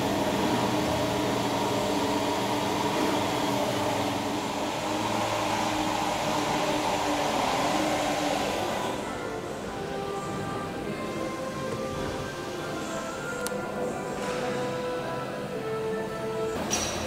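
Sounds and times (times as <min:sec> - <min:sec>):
steady mechanical hum: 0:00.0 - 0:17.0.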